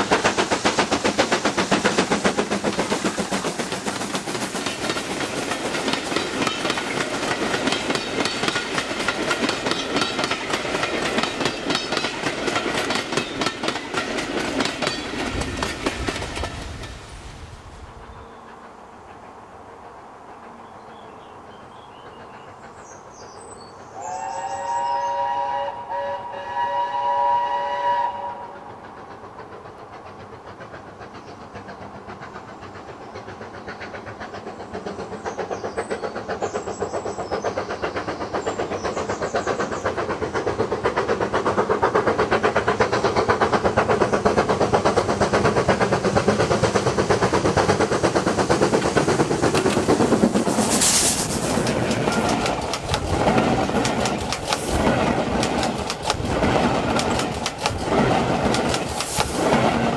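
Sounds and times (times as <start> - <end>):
steam hiss: 0.0 - 20.6, 21.5 - 59.9
train wheels clattering on rails: 0.0 - 24.9, 28.0 - 59.9
steam locomotive whistle: 24.0 - 28.8
locomotive exhaust beats: 24.0 - 59.9.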